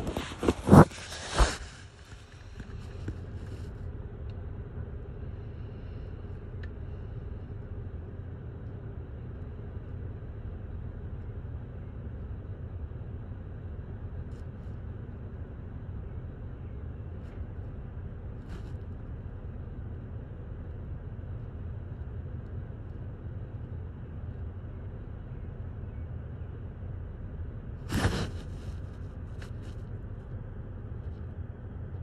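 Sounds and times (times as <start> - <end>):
sharp knocks and rustles: 0.0 - 3.6
steady low rumble: 0.0 - 32.0.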